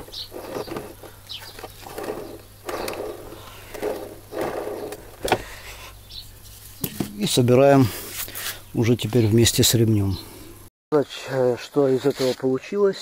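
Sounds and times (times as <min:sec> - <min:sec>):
plastic pulley rubbing and whirring: 0:00.0 - 0:05.6.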